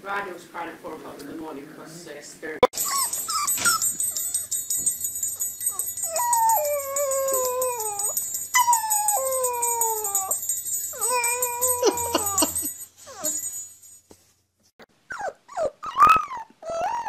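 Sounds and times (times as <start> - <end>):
small bell jingling: 2.8 - 14.3
puppy howling: 5.7 - 13.4, 15.1 - 17.0.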